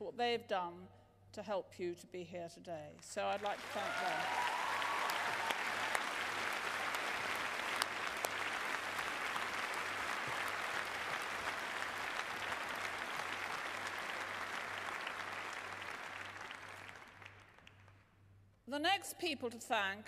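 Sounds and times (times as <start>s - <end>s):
large audience applauding: 3.2s - 18.0s.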